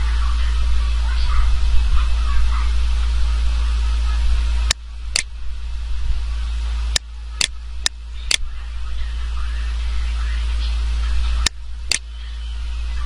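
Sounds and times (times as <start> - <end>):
low hum and hiss: 0.0 - 13.0
sharp clicks: 4.6 - 5.3, 6.9 - 8.5, 11.4 - 12.1.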